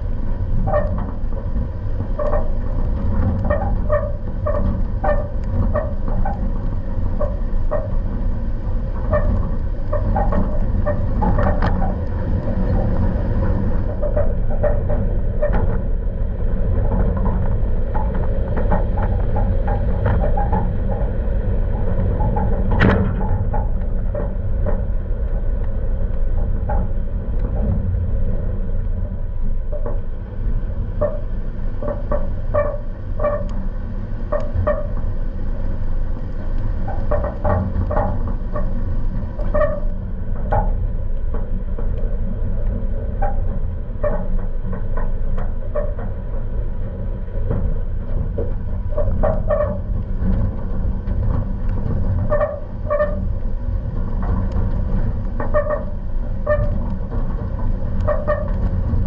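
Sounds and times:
engine and tyres rumbling: 0.0 - 59.0
truck squeaking: 52.2 - 53.3, 55.4 - 56.8, 58.0 - 58.6.

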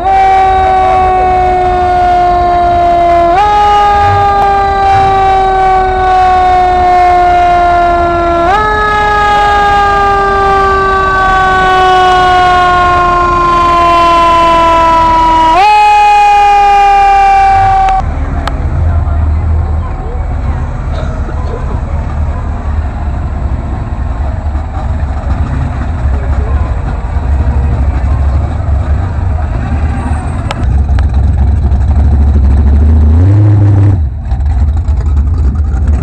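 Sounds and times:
fire engine siren wailing: 0.0 - 18.2.

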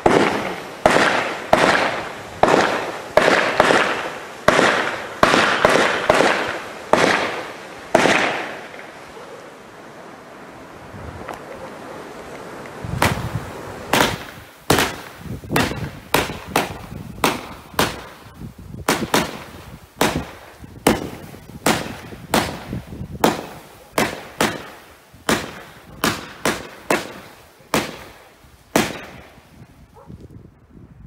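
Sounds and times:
fireworks launch reports: 0.0 - 9.1, 12.6 - 30.0.

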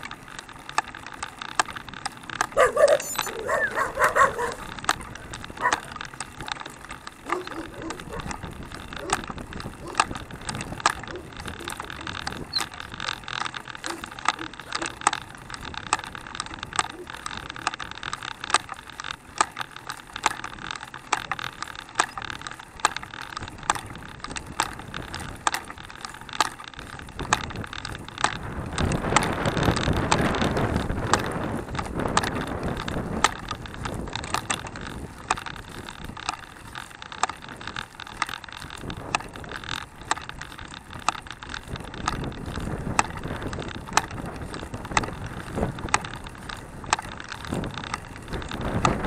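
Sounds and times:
chain and frame clicking and rattling: 0.0 - 49.0
wheels rolling on pavement: 0.0 - 49.0.

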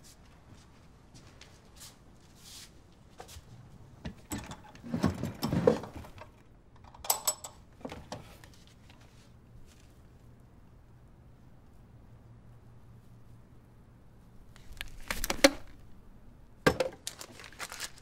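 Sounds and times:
objects rustling and knocking: 3.2 - 6.4.

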